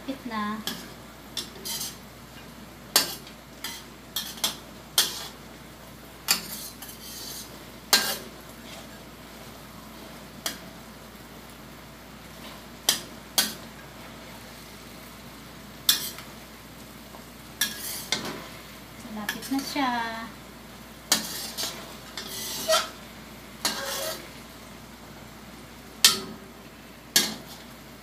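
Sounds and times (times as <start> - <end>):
sauce sizzling: 0.0 - 28.0
spatula scraping metal wok: 0.6 - 2.0, 3.0 - 5.4, 6.3 - 9.0, 15.9 - 16.3, 17.6 - 18.4, 21.1 - 23.0, 23.6 - 24.4, 27.2 - 27.7.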